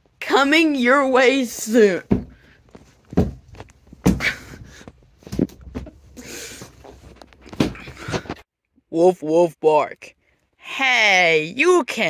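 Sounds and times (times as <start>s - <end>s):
handling rustling: 2.1s - 8.4s.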